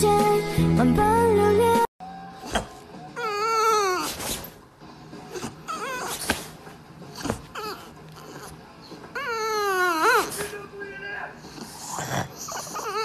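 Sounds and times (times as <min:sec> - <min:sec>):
dog whining: 0:02.3 - 0:04.6, 0:05.2 - 0:10.5, 0:11.5 - 0:13.0.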